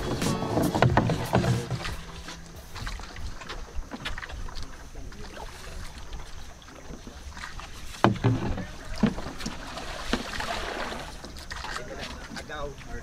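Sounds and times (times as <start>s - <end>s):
loud thumps: 0.0s - 2.9s
water sloshing around boat: 0.0s - 13.0s
small knocks: 8.0s - 9.5s.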